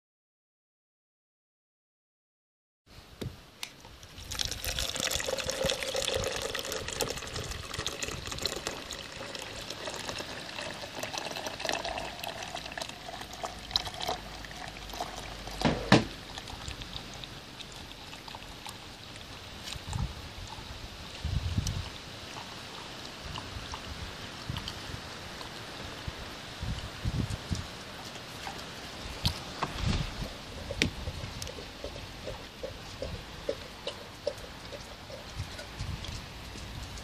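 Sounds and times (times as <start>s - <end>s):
water trickling into plastic jug: 4.0s - 20.7s.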